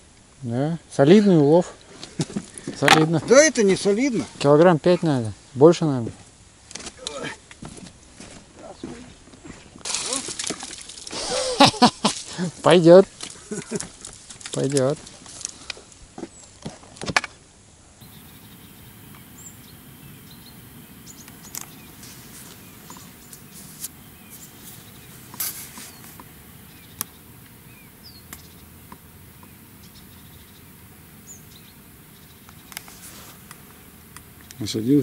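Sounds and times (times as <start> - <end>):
low background hiss: 0.0 - 8.1, 9.9 - 16.5, 17.3 - 35.0
bird chirps: 18.0 - 35.0
sharp clicks and taps: 20.6 - 27.6, 28.2 - 30.0.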